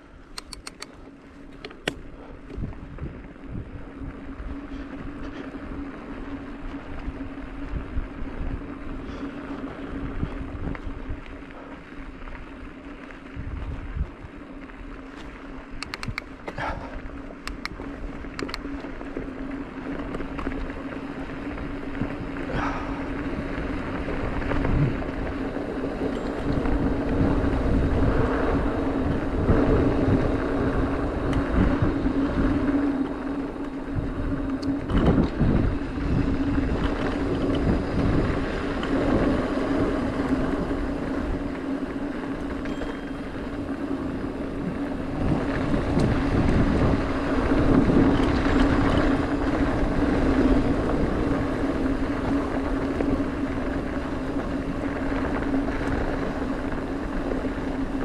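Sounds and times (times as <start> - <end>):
bike tyres on dirt and gravel: 0.0 - 58.0
steady hum: 0.0 - 58.0
wind buffeting microphone: 1.5 - 58.0.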